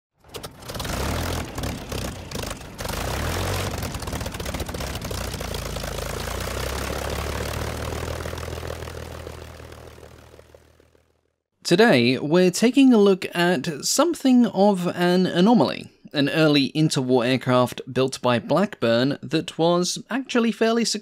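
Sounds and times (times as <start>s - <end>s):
propeller aircraft engine droning: 0.2s - 11.4s.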